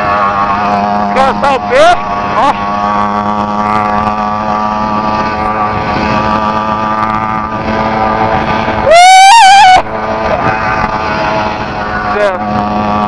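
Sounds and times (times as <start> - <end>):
two-stroke engine running: 0.0 - 13.0
loud high wavering shout: 8.7 - 10.5.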